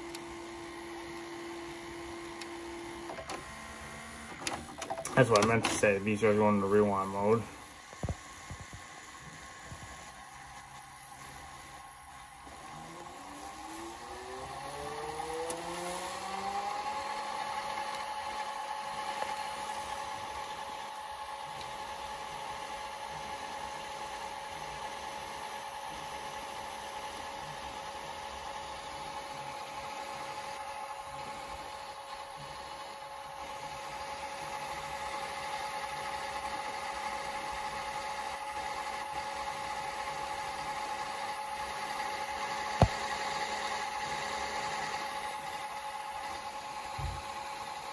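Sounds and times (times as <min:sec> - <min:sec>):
tape drive whine: 0:00.0 - 0:47.9.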